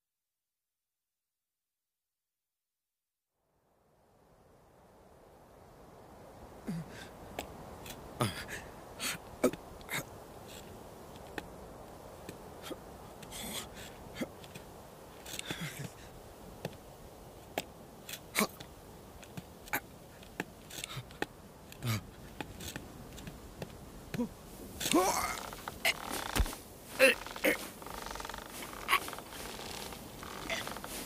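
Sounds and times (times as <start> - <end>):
hooves scraping on rock: 17.4 - 31.0.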